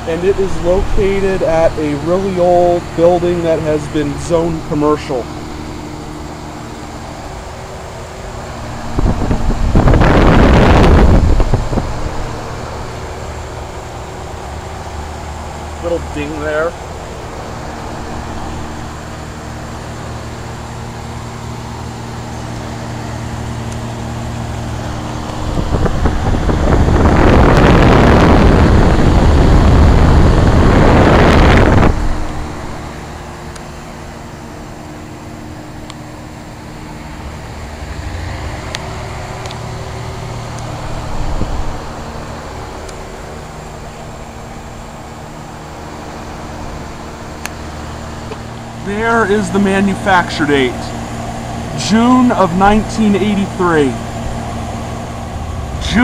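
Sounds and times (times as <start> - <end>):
heat pump fan and compressor hum: 0.0 - 56.0
loud rushing noise: 36.8 - 56.0.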